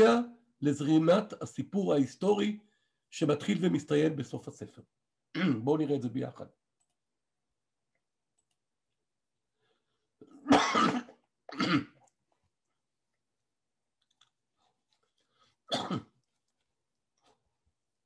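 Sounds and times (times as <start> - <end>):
man coughing: 5.4 - 5.6, 10.4 - 12.0, 15.7 - 16.2.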